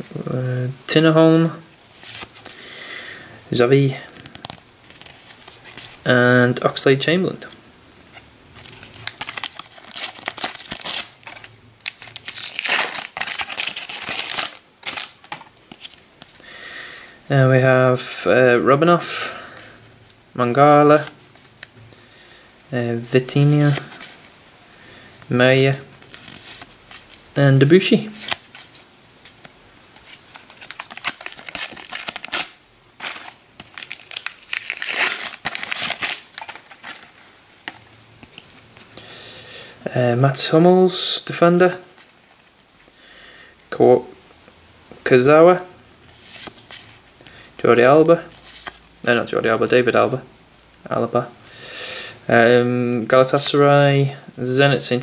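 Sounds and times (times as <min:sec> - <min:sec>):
wrapper tearing and crinkling: 0:08.6 - 0:16.1, 0:26.0 - 0:27.2, 0:30.0 - 0:38.6.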